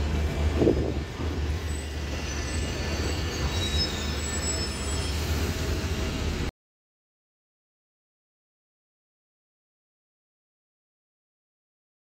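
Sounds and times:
bus engine rumbling: 0.0 - 6.5.

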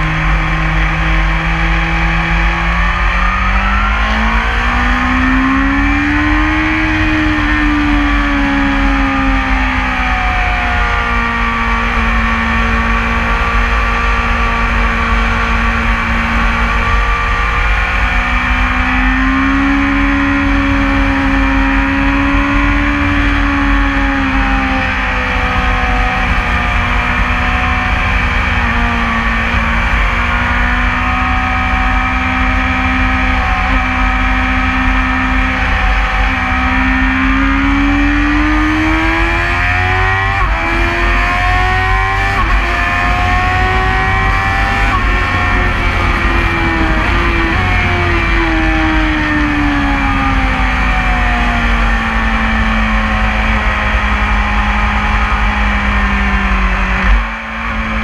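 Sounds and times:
motorcycle engine at speed: 0.0 - 58.0
wind rush: 39.0 - 53.0.

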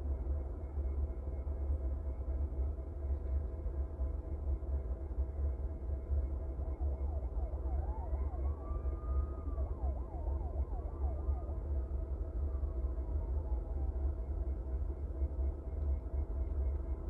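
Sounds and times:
faint emergency siren: 0.0 - 17.0.

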